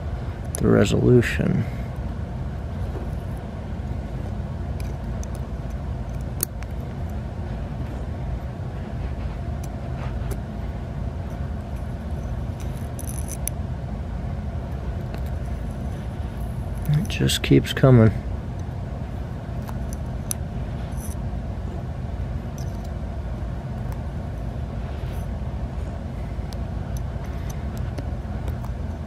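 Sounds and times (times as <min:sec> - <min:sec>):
low background hum: 0:00.0 - 0:29.0
metal tool scraping a roller: 0:11.3 - 0:13.5.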